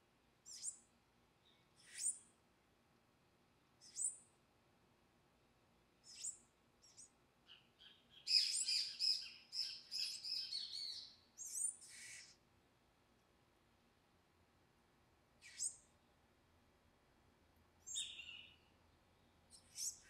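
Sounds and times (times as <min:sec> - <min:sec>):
birds calling: 0:07.5 - 0:12.4, 0:17.9 - 0:18.7.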